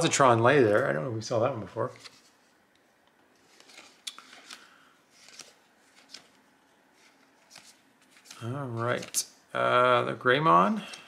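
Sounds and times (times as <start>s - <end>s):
trading cards flipped by hand: 1.9s - 2.4s, 3.4s - 9.2s.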